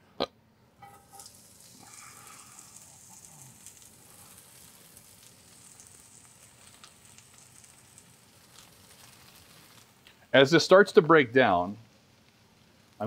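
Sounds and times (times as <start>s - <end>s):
stirring clicks: 0.8s - 10.2s
vegetables sizzling in oil: 0.8s - 13.0s.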